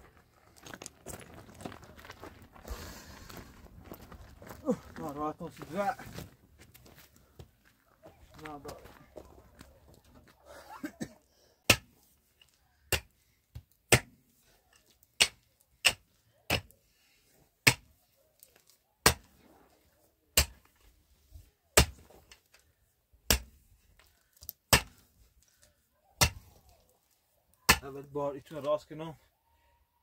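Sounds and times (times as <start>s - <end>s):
pickaxe striking stony ground: 11.7s - 12.0s, 12.9s - 14.2s, 15.1s - 16.7s, 17.6s - 17.9s, 19.0s - 19.4s, 20.4s - 20.8s, 21.8s - 22.3s, 23.3s - 23.7s, 24.4s - 25.1s, 26.2s - 26.6s, 27.7s - 28.0s.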